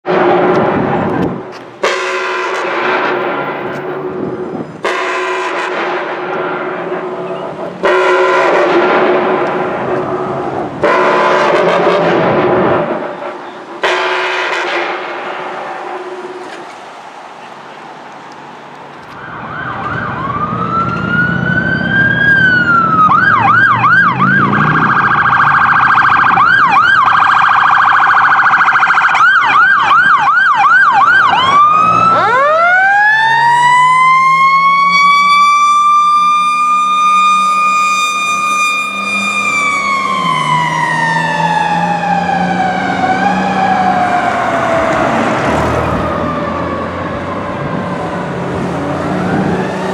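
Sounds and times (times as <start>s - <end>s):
fire engine rumble: 0.1s - 49.9s
electronic siren wailing and yelping: 19.2s - 49.9s.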